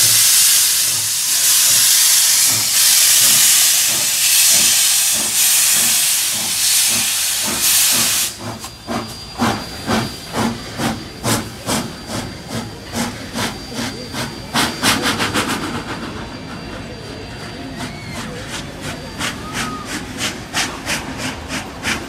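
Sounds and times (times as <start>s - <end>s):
steam hissing from drain cocks: 0.0s - 16.1s
steam locomotive exhaust chuffs: 0.0s - 22.0s.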